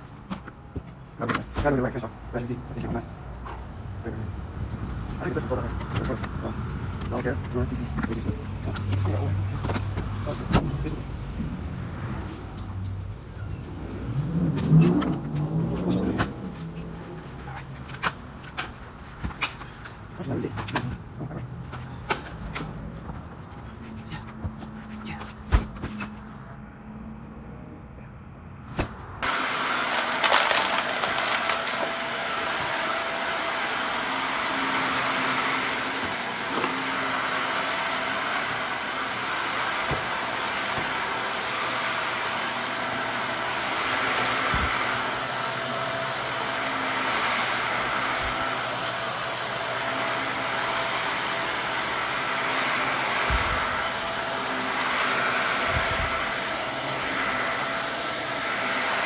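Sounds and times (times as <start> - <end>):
vacuum cleaner running on carpet: 13.8 - 18.1, 29.2 - 59.0.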